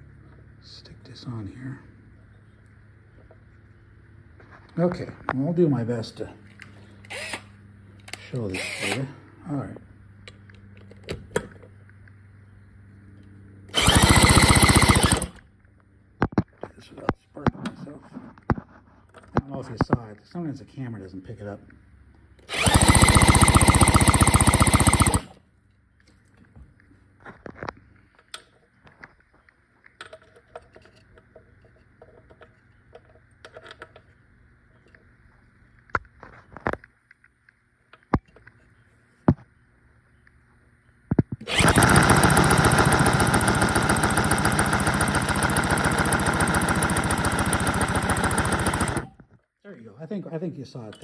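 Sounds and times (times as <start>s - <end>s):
power drill cranking engine rattle: 7.1s - 7.4s, 8.2s - 9.1s, 13.7s - 15.4s, 22.5s - 25.4s, 41.4s - 49.2s
sharp loud clicks: 13.7s - 15.5s, 22.5s - 25.4s, 41.2s - 49.2s.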